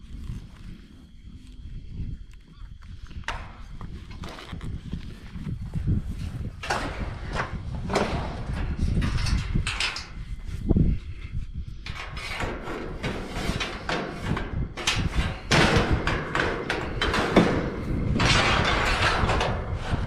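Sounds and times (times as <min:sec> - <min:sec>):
metal knocks and clanks: 0:06.1 - 0:10.4, 0:11.8 - 0:20.0.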